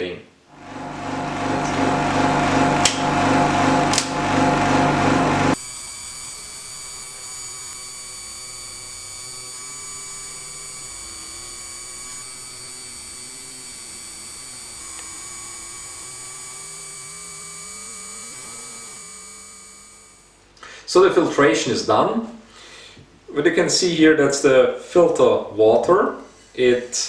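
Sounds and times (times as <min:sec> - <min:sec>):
vacuum pump humming and whining: 0:00.6 - 0:20.6.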